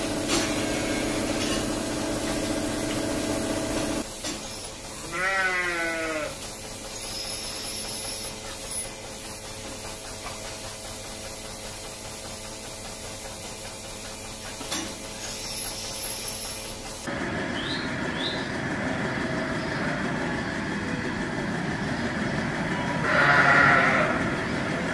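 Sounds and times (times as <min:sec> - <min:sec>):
milking machinery humming: 0:00.0 - 0:24.9
sheep bleating: 0:05.0 - 0:06.4, 0:23.0 - 0:24.3.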